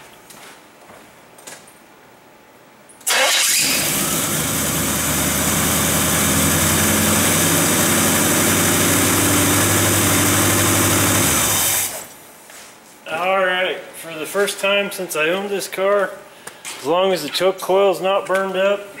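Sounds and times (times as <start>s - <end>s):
car engine starting and idling: 3.0s - 12.2s.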